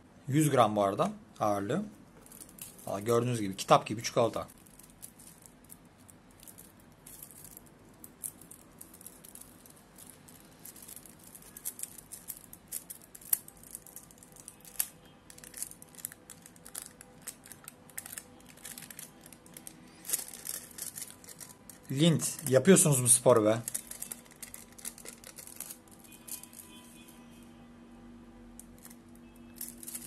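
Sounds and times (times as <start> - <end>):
foil wrapper crinkling: 8.2 - 22.6, 23.3 - 26.8.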